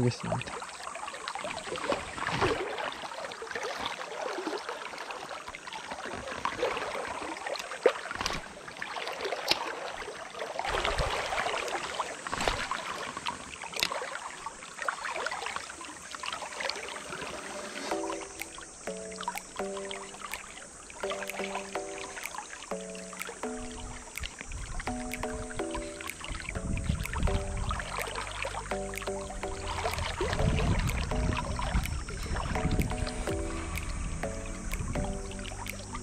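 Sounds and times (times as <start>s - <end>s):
rushing river water: 0.0s - 36.0s
splashes and ticks: 0.0s - 36.0s
music with held notes: 17.9s - 36.0s.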